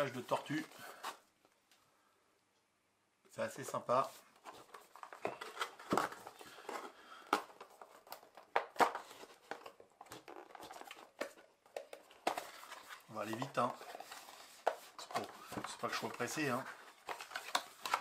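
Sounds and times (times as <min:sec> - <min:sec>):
packaging rustling and scraping: 0:04.1 - 0:18.0.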